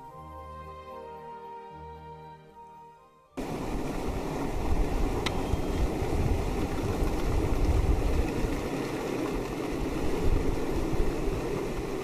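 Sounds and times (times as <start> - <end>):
wind buffeting microphone: 3.4 - 12.0.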